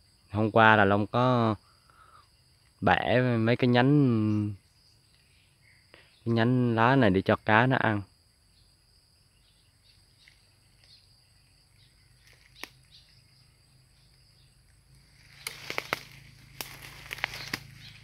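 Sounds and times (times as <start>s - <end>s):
insect chirring: 0.0s - 18.0s
rustling of leaves and leaf litter: 9.9s - 18.0s
sharp snaps of plants: 12.1s - 13.1s, 14.6s - 18.0s.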